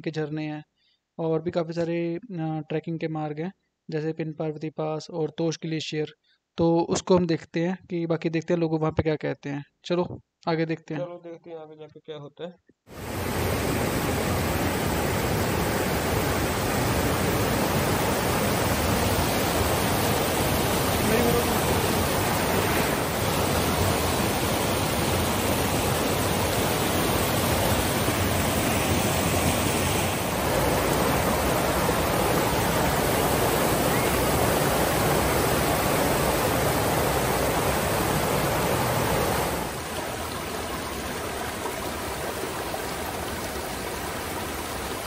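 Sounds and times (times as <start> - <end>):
waterfall rushing: 12.9 - 45.0.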